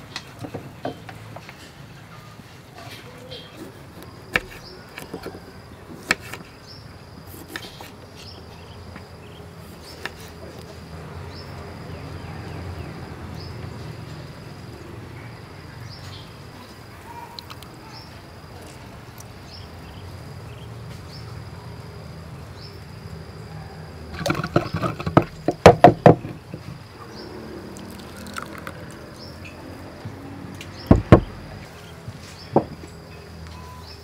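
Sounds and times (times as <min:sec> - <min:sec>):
insects chirping: 0:00.0 - 0:34.0
pestle knocking in a mortar: 0:24.1 - 0:26.7.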